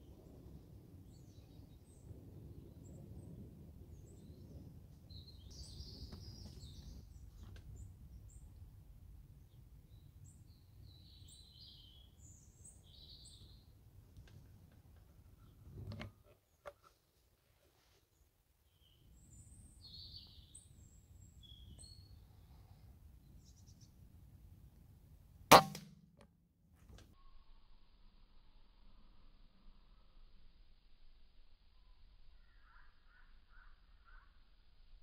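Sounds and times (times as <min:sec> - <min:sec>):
small birds chirping: 0:01.0 - 0:13.8, 0:18.2 - 0:24.1.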